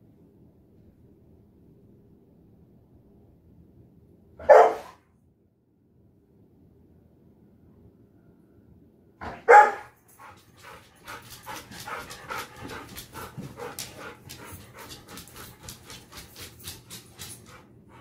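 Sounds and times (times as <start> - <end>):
dog panting: 9.2 - 18.0.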